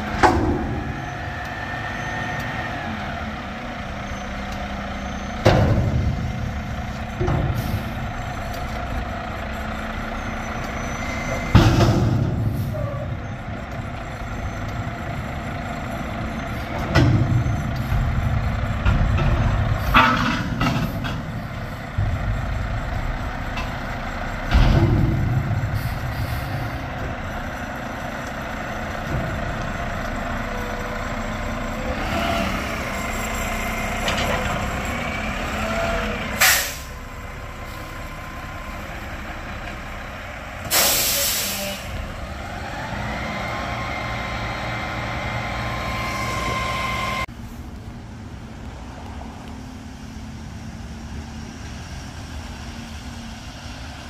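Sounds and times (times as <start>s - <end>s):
loud metal clanks and thumps: 0.0s - 1.1s, 5.4s - 9.3s, 11.3s - 13.6s, 16.7s - 30.3s, 32.7s - 35.0s
diesel engine revving: 0.0s - 47.4s
air brakes hissing: 7.4s - 8.1s, 25.4s - 27.0s, 36.4s - 37.0s, 40.6s - 42.0s.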